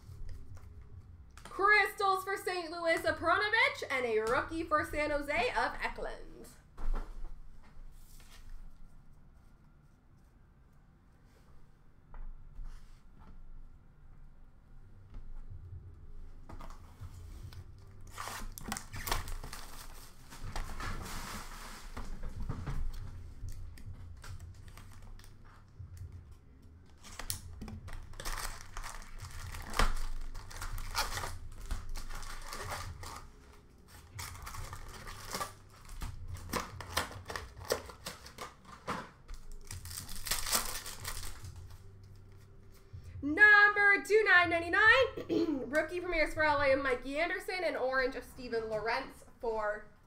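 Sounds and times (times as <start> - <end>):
card pack wrappers crinkling and ripping: 18.1 - 20.8, 26.9 - 41.9
cards being shuffled: 22.8 - 42.9.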